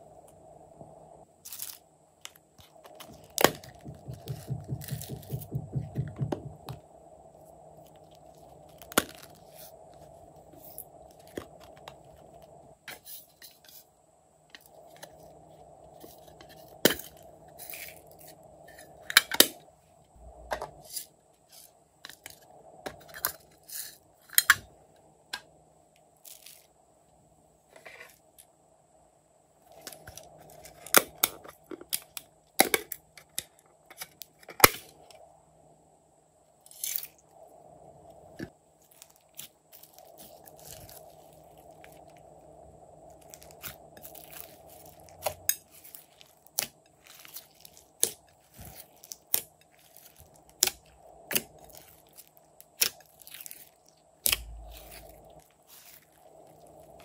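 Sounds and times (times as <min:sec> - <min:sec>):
faint steady hum: 0:00.0 - 0:57.0
plastic cases being handled: 0:02.6 - 0:06.8.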